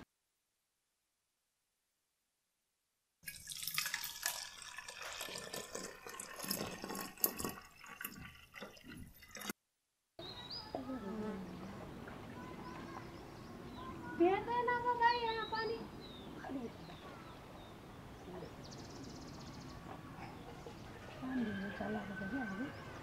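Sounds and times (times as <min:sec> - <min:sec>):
water splashing and pouring: 0:03.2 - 0:09.6.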